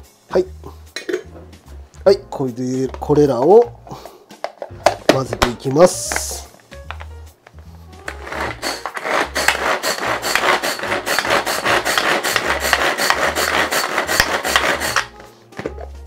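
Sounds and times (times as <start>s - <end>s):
pull-cord chopper blades whirring: 8.2s - 15.1s.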